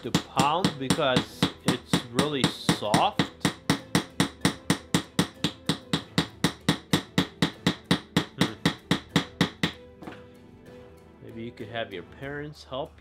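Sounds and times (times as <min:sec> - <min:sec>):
toy tool tapping on dried clay: 0:00.0 - 0:09.8.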